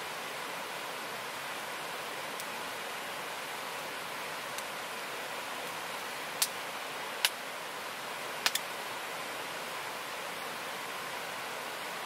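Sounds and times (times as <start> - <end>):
river rushing: 0.0 - 12.0
sharp clicks: 8.4 - 8.6.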